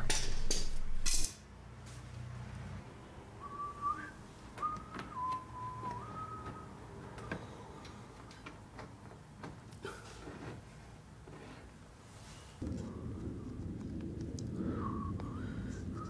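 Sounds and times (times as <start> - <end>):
person whistling: 3.4 - 7.4, 14.7 - 16.0.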